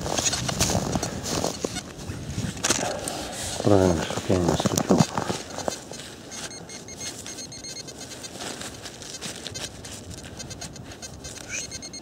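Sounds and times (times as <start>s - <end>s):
hand rummaging through soil and leaves: 2.5s - 11.6s.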